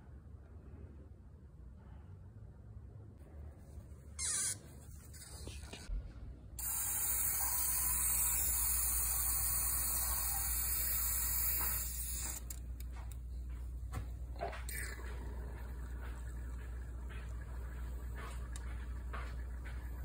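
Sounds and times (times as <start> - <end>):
low steady hum: 0.0 - 20.0
aerosol spray hiss: 6.6 - 12.5.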